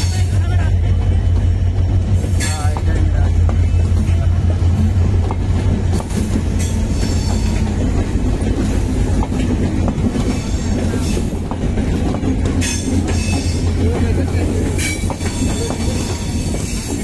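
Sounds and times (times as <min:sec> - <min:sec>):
train rumbling past: 0:00.0 - 0:17.0
wheels and couplings clanking: 0:00.0 - 0:17.0.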